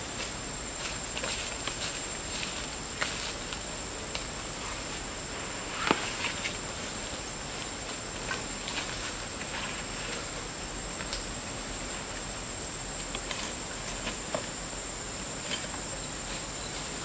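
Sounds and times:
dry leaves and twigs crackling: 0.2 - 5.0, 5.8 - 11.4.

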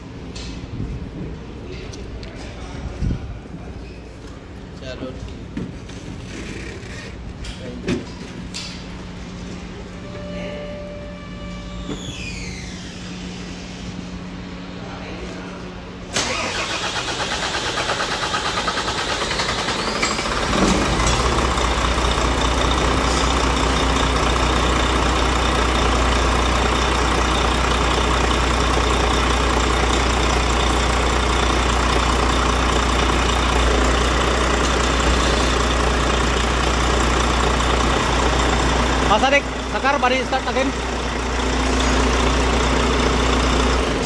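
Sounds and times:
diesel engine idling: 15.8 - 44.0
diesel engine cranking by starter: 16.0 - 44.0.

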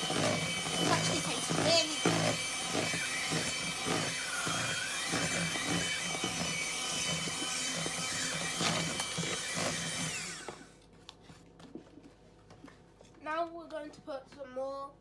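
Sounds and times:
electric hand mixer whining: 0.0 - 10.8.

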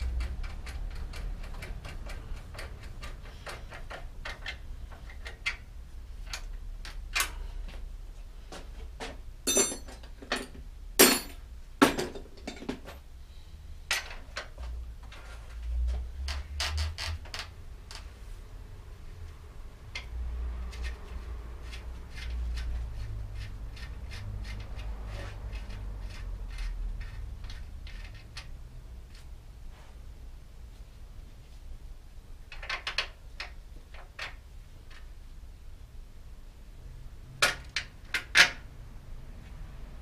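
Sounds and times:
sharp metal clanks: 9.5 - 12.8.

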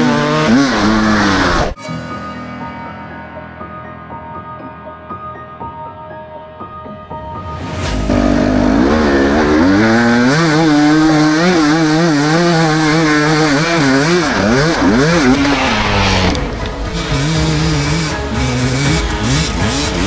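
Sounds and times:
dirt bike engine revving: 0.0 - 1.8, 8.0 - 20.0.

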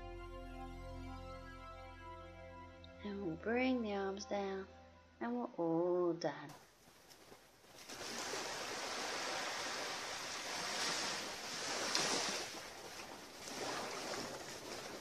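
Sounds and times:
small waves lapping on shore: 6.8 - 15.0.

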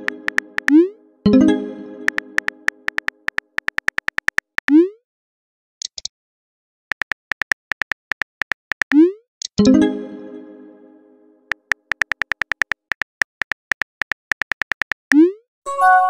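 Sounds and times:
high blips: 0.0 - 1.0, 2.1 - 4.8, 11.5 - 15.4
phone keyboard typing clicks: 0.1 - 0.8, 2.1 - 4.7, 6.9 - 9.6, 11.5 - 15.2.

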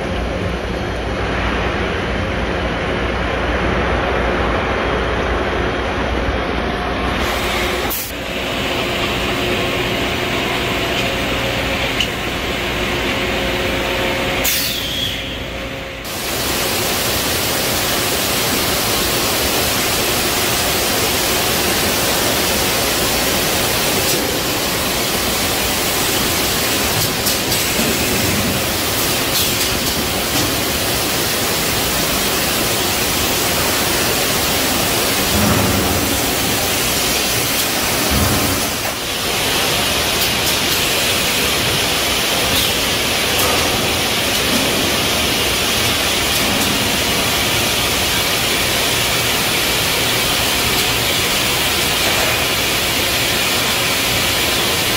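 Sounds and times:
factory machinery hissing: 3.1 - 54.9.

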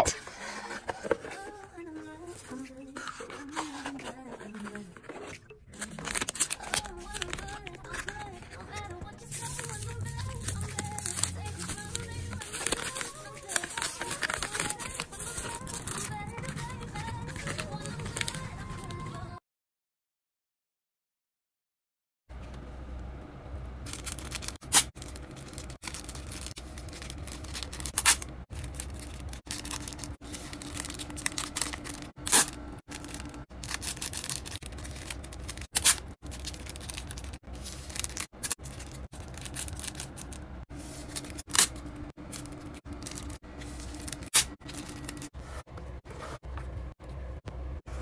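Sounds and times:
packaging rustling and tearing: 3.0 - 18.9, 23.9 - 45.6.

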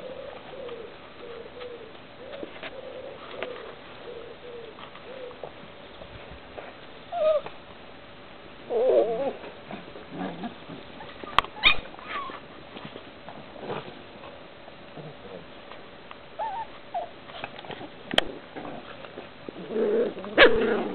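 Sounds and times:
puppies whining and squealing: 7.1 - 7.5, 8.7 - 9.5, 11.0 - 12.4, 16.4 - 17.2.

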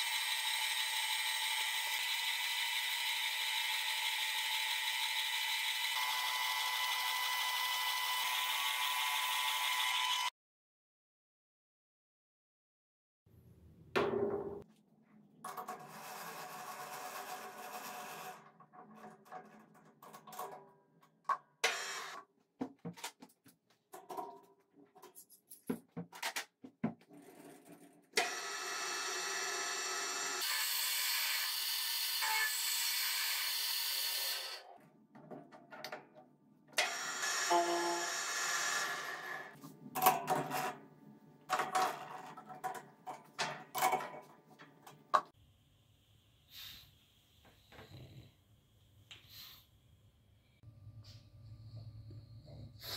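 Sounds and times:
clicks and knocks of steel parts: 22.8 - 26.7, 41.5 - 45.3.

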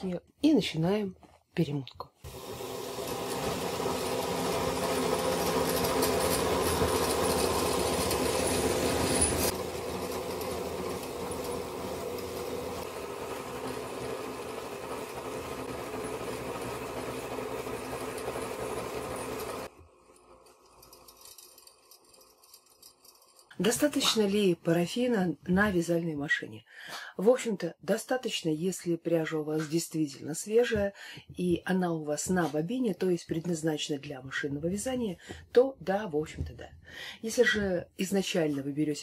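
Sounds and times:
yarn winder motor running: 2.3 - 21.0.

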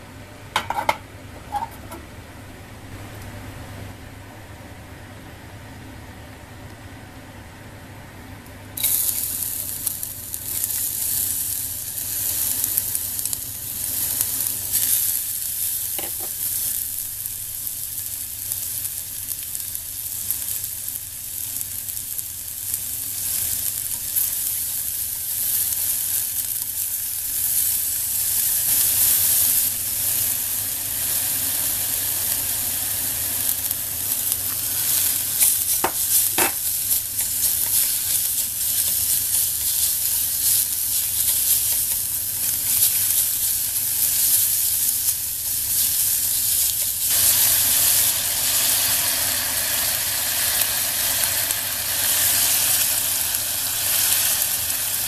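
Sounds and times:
garlic sizzling in hot oil: 8.8 - 55.0.

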